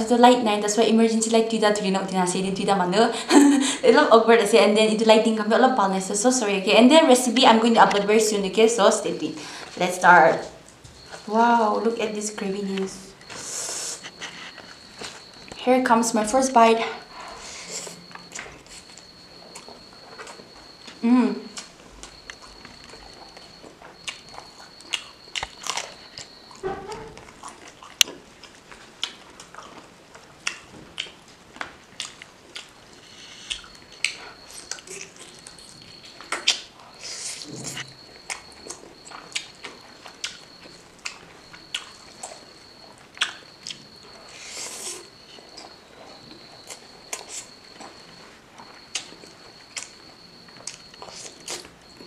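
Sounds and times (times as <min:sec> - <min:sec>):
chewing with wet mouth smacks: 0:18.1 - 0:52.0.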